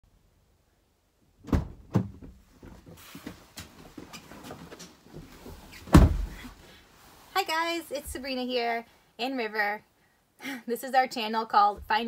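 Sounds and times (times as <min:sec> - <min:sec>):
heavy thump: 0:01.4 - 0:02.4, 0:05.8 - 0:06.5
thumps: 0:01.4 - 0:02.9, 0:05.2 - 0:06.5
jacket fabric rustling: 0:02.4 - 0:08.5.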